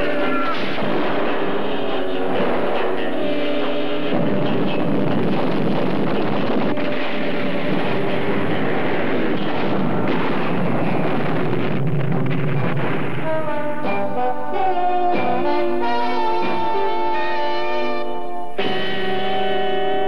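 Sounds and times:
roaring explosion rumble: 0:00.0 - 0:14.1.

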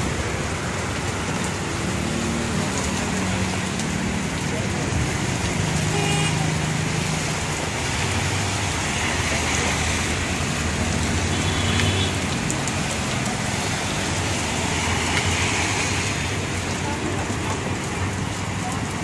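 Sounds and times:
passing motorcycles and cars: 0:00.0 - 0:19.0
rain on wet road: 0:00.0 - 0:19.0.

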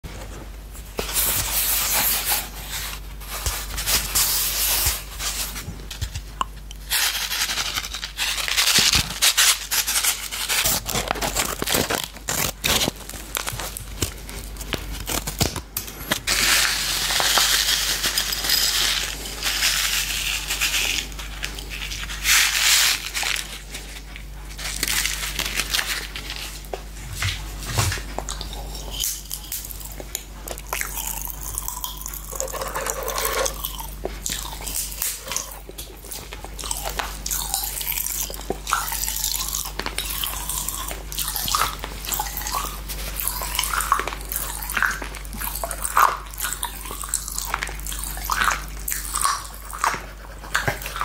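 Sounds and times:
candy packet crinkling: 0:01.8 - 0:26.7.

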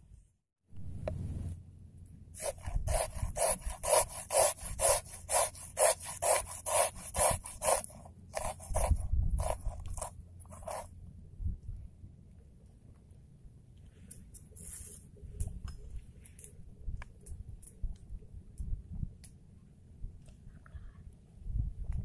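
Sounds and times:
ginger grated on metal grater: 0:02.4 - 0:10.9.

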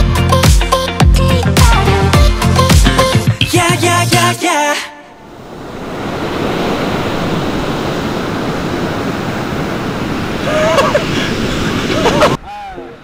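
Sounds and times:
ocean surf breaking on beach: 0:04.6 - 0:13.0.

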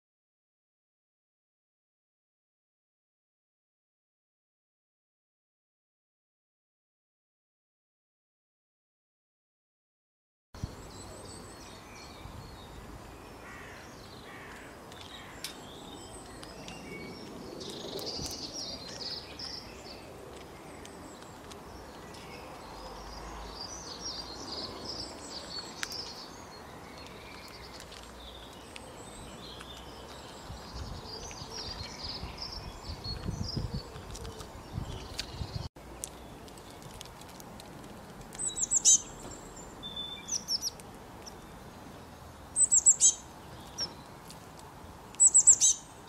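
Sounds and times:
songbirds chirping and trilling: 0:10.6 - 0:46.0
steady outdoor hiss: 0:10.6 - 0:46.0.

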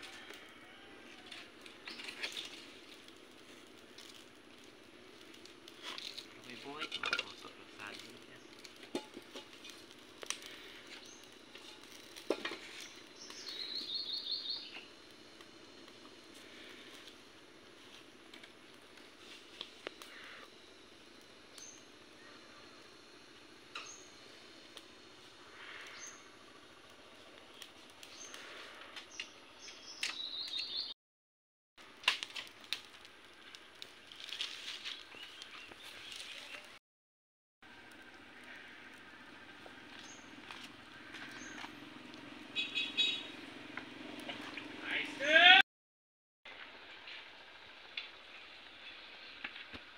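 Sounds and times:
wood fire crackling: 0:00.0 - 0:30.9, 0:31.8 - 0:36.8, 0:37.6 - 0:45.6, 0:46.5 - 0:49.9
birds chirping: 0:06.3 - 0:08.8, 0:10.4 - 0:11.5, 0:12.7 - 0:15.0, 0:19.9 - 0:24.4, 0:25.4 - 0:31.0, 0:34.9 - 0:36.8, 0:38.0 - 0:45.2
bird chirping trill: 0:12.9 - 0:14.9, 0:29.2 - 0:30.9.

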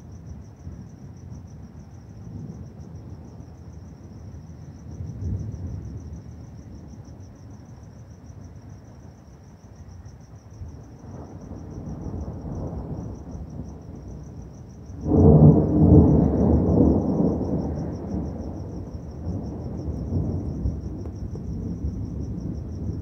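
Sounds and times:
crickets chirping: 0:00.0 - 0:23.0
thunder rumbling: 0:10.7 - 0:23.0.

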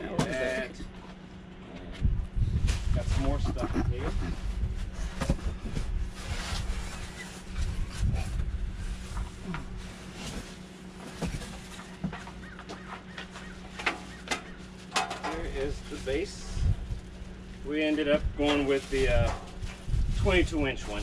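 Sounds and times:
steady low hum: 0:00.0 - 0:21.0
wind buffeting microphone: 0:01.9 - 0:09.9, 0:15.4 - 0:21.0.

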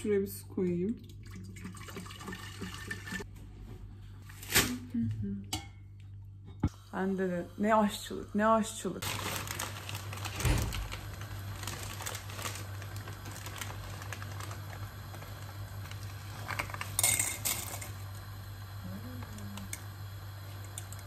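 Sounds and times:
low steady hum: 0:00.0 - 0:21.0
packet rustling: 0:09.0 - 0:17.0
spaghetti rattling into a pot: 0:15.8 - 0:17.9.

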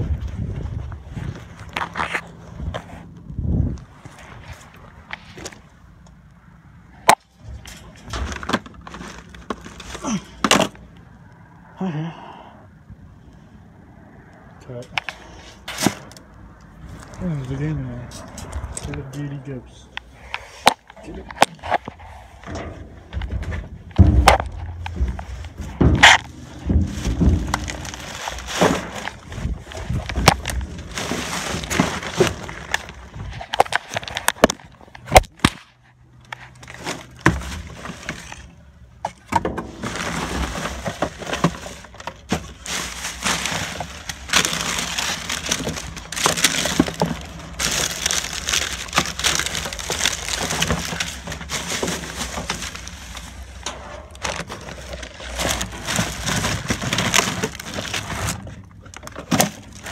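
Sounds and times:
boxes and bottles clattering: 0:07.1 - 0:10.8, 0:20.6 - 0:35.6, 0:36.6 - 0:59.9
plastic and cardboard rustling: 0:07.1 - 0:10.8, 0:20.4 - 0:59.9.

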